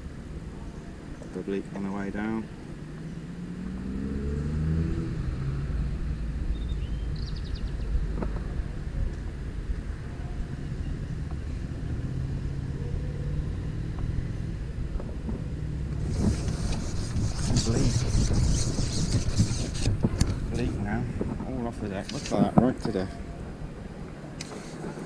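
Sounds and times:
road traffic rumble: 0.0s - 25.0s
passing vehicle engine: 2.7s - 6.9s, 10.5s - 16.8s.

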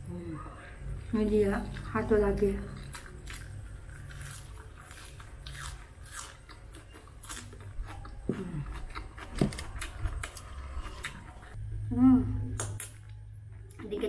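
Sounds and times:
chewing and crunching leaves: 0.9s - 11.6s.

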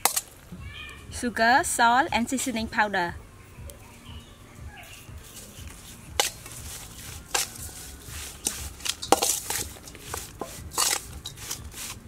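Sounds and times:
metal spoon scraping steel bowl: 5.2s - 12.0s.

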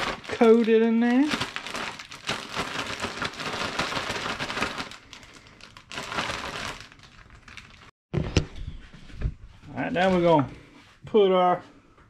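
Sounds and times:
plastic bag rustling and crinkling: 0.0s - 7.9s.

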